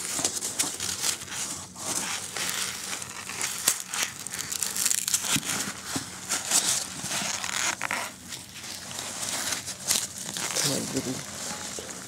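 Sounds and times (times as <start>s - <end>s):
packing foam rustling: 0.0s - 12.0s.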